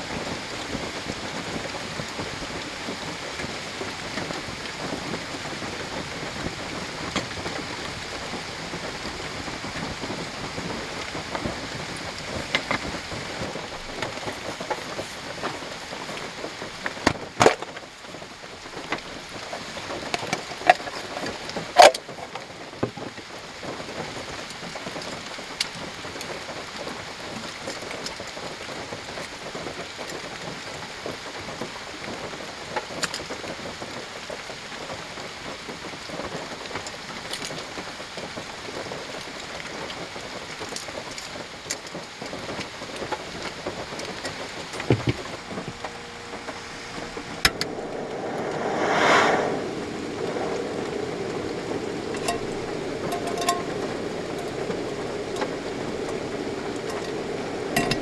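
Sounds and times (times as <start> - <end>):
rain on car roof: 0.0 - 48.2, 49.7 - 58.0
gas burner rushing: 44.8 - 58.0.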